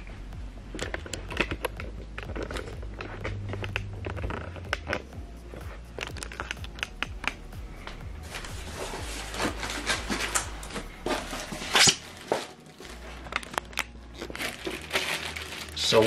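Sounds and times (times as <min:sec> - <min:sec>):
packaging rustling and crackling: 0:08.2 - 0:16.0.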